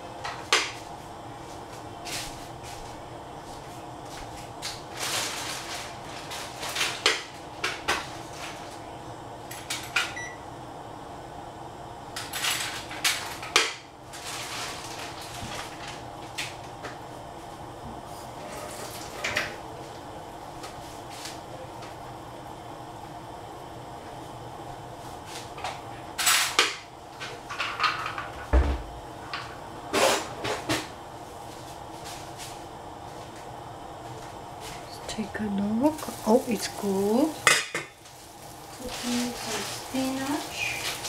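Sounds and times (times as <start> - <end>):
steady low hum: 0.0 - 41.0
pan clicking and crackling: 4.6 - 8.7, 34.8 - 41.0.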